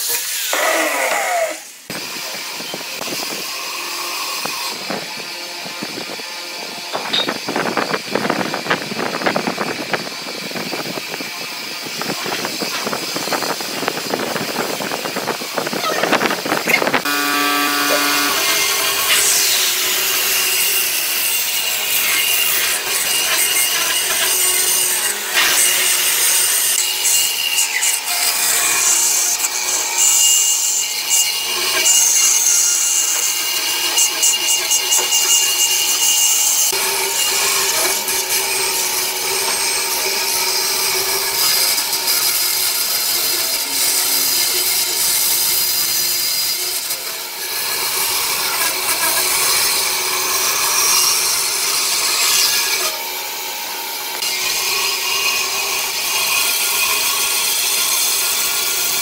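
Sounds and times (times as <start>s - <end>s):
saw blade hissing through wood: 0.0s - 1.9s
band saw motor hum: 0.2s - 59.0s.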